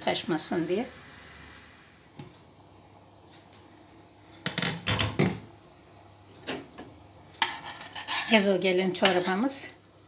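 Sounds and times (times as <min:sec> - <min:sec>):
ladle scraping a metal pot: 0:07.4 - 0:09.6.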